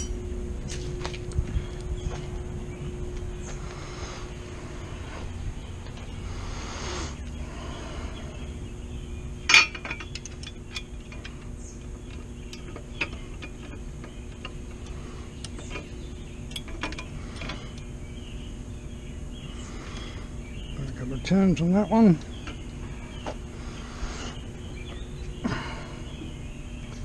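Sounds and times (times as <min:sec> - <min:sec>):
background hum: 0:00.0 - 0:27.0
metal tools clinking and ticking: 0:09.5 - 0:15.9, 0:16.5 - 0:17.9.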